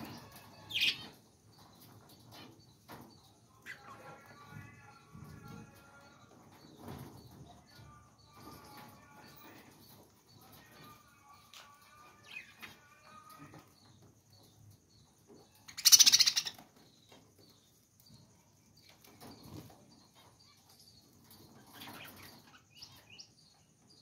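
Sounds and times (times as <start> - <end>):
budgerigars chirping: 15.8 - 16.6.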